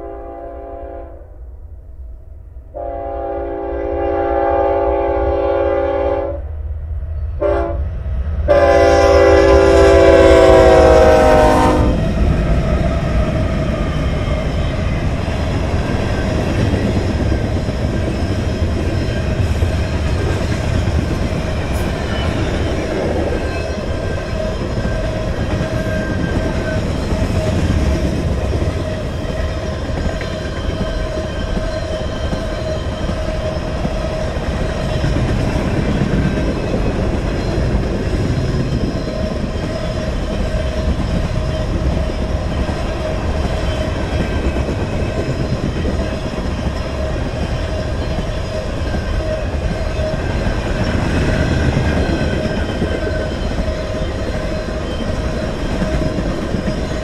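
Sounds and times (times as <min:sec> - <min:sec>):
locomotive air horn: 0:00.0 - 0:01.3, 0:02.7 - 0:06.5, 0:07.4 - 0:07.8, 0:08.5 - 0:12.0.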